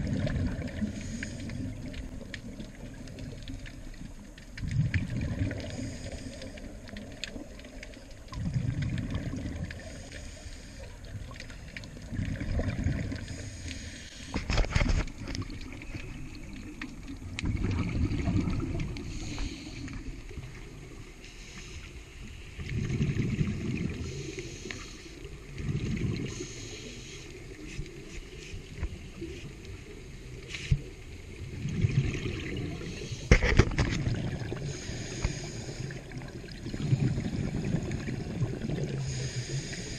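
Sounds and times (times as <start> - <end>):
exhaled bubbles rumbling: 0.0 - 21.2, 22.4 - 26.5, 27.4 - 39.9
regulator inhalation hiss: 0.9 - 1.8, 5.7 - 6.8, 9.8 - 11.0, 13.2 - 14.4, 19.0 - 20.1, 21.2 - 22.4, 24.0 - 25.3, 26.3 - 28.6, 34.6 - 36.1, 39.0 - 39.9.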